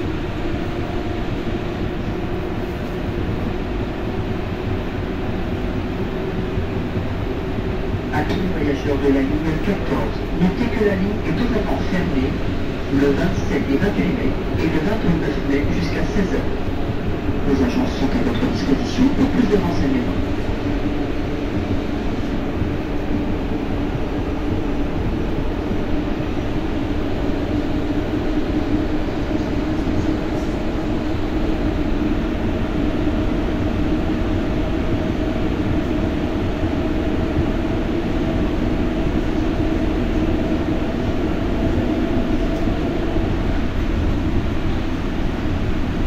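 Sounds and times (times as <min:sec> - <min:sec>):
train rumbling through a tunnel: 0:00.0 - 0:46.0.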